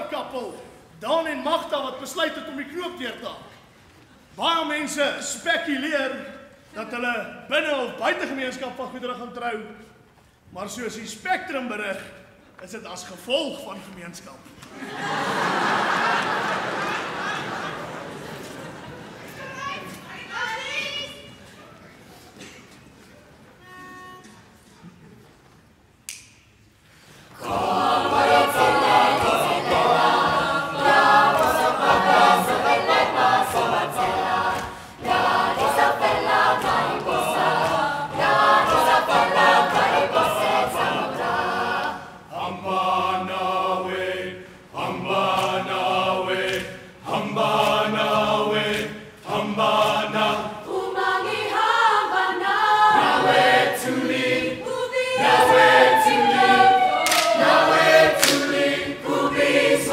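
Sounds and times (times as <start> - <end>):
choir singing in harmony: 14.7 - 19.2, 27.3 - 59.9.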